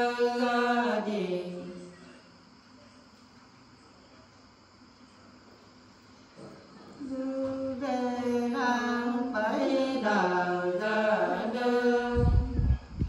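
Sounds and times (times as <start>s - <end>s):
women singing unaccompanied: 0.0s - 2.0s, 6.9s - 13.0s
low rumbling noise: 12.1s - 13.0s.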